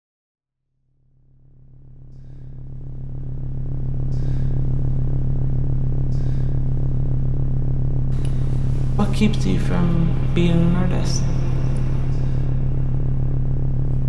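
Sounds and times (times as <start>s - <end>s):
low synthesizer drone: 1.3s - 14.0s.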